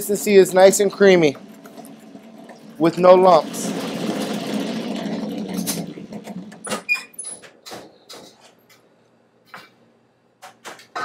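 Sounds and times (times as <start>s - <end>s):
floor mixer running: 0.0s - 6.9s.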